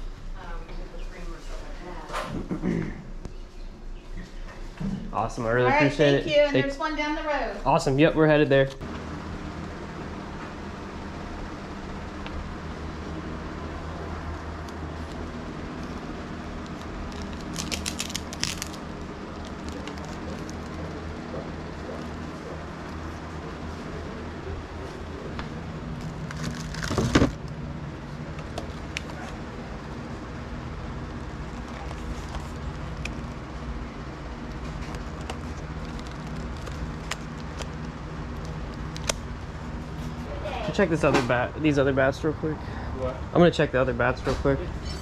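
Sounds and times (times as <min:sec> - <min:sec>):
steady low hum: 0:00.0 - 0:45.0
plastic packaging crinkling: 0:16.5 - 0:21.2, 0:26.0 - 0:27.5, 0:34.7 - 0:39.2.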